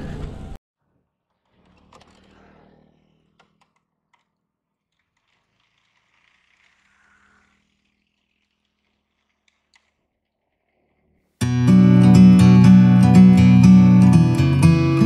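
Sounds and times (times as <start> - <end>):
scooter engine humming: 11.4 - 15.0.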